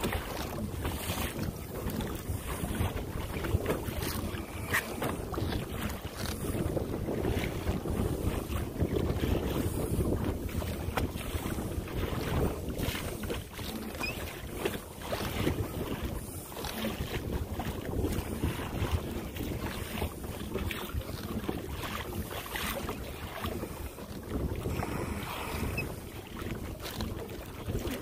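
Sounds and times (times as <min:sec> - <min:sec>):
water sloshing against kayak: 0:00.0 - 0:28.0
wind buffeting microphone: 0:00.0 - 0:28.0.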